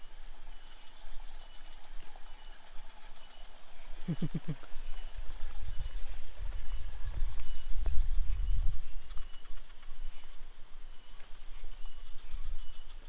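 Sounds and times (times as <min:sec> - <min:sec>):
low rumbling on microphone: 0:04.0 - 0:13.0.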